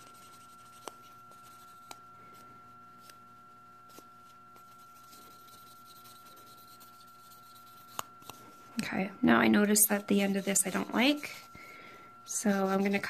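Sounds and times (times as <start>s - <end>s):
nail buffer rubbing: 0.0s - 2.0s, 3.9s - 8.6s, 9.8s - 11.5s, 12.3s - 13.0s.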